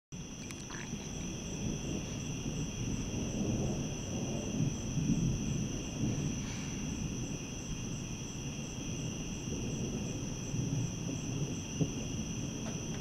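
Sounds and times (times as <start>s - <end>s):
low uneven rumble: 0.2s - 7.7s
night insects trilling: 0.2s - 13.0s.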